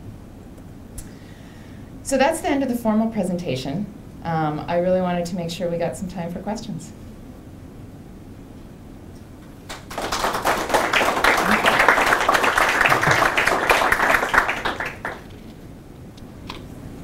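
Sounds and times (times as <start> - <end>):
audience applause: 9.7 - 15.4.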